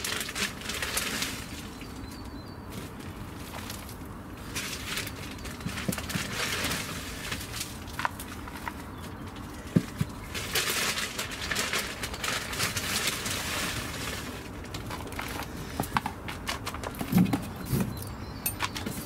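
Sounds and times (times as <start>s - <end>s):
soil falling through sieve: 0.0s - 1.9s, 2.7s - 8.8s, 9.6s - 15.5s.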